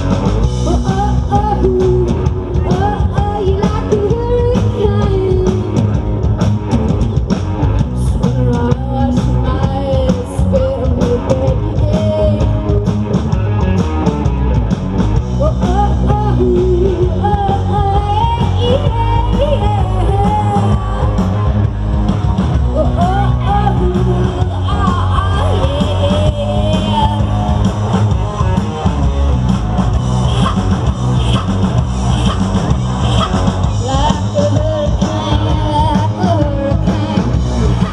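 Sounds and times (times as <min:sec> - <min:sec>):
bass guitar: 0:00.0 - 0:37.9
drum kit: 0:00.0 - 0:37.9
electric guitar: 0:00.0 - 0:37.9.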